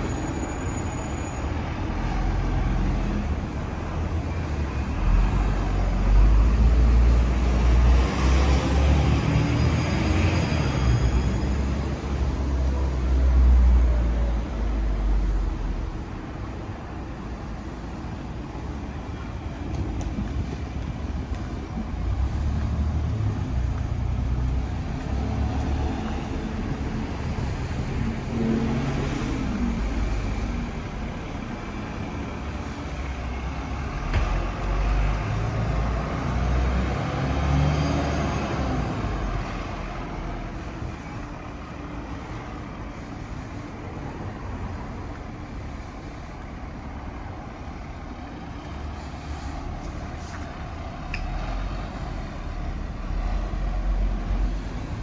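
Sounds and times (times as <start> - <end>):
road traffic passing: 0.0 - 55.0.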